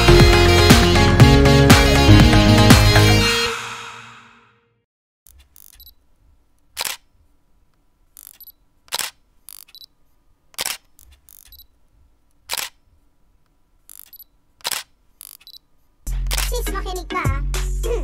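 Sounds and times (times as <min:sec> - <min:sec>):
camera shutter clicks: 0:06.7 - 0:07.1, 0:08.2 - 0:09.9, 0:10.6 - 0:11.7, 0:12.4 - 0:12.8, 0:13.9 - 0:15.6, 0:16.2 - 0:16.5.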